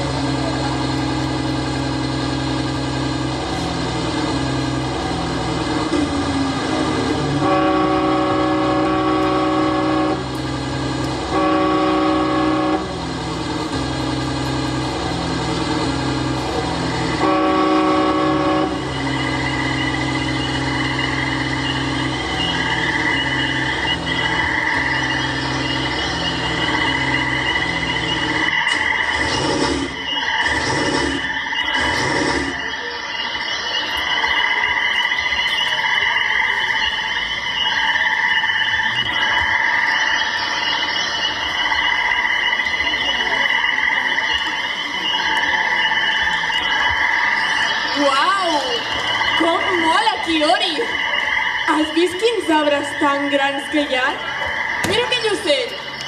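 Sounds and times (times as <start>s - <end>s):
train running: 0.0s - 56.0s
train horn blasts: 7.3s - 13.1s, 17.0s - 19.8s.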